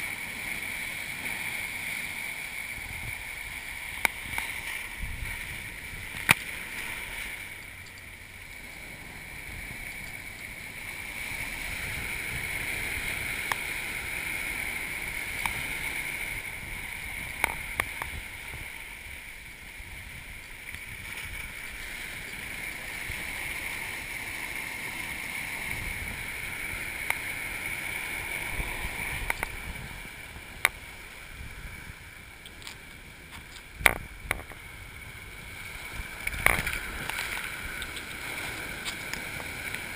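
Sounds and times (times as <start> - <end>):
surf breaking and rushing: 0.0 - 39.9
water and sand striking camera: 3.9 - 8.0, 28.4 - 31.0, 32.4 - 34.7, 36.0 - 39.9.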